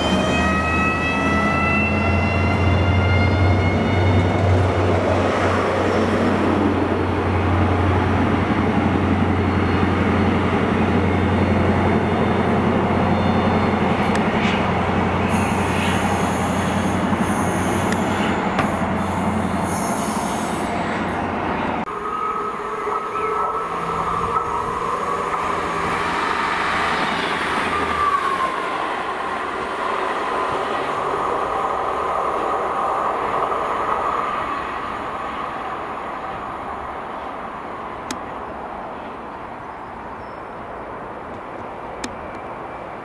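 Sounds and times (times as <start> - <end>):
diesel train engine drone: 0.0 - 43.0.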